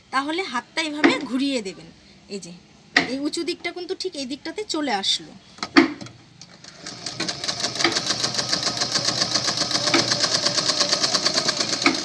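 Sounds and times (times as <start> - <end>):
sewing machine stitching: 6.4 - 12.0.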